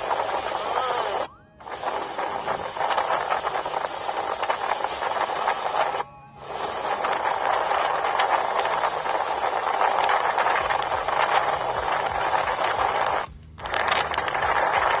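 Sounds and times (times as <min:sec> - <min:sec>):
boat engine: 0:00.0 - 0:15.0
wind rush: 0:00.0 - 0:15.0.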